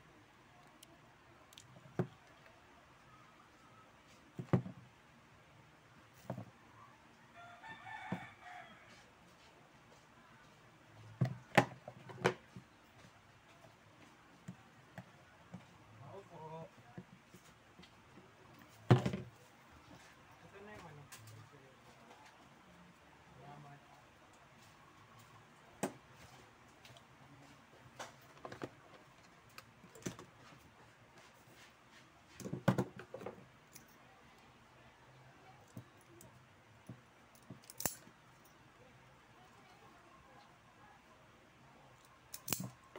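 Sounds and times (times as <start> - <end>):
tools clicking and knocking: 35.6 - 38.2, 42.0 - 42.9.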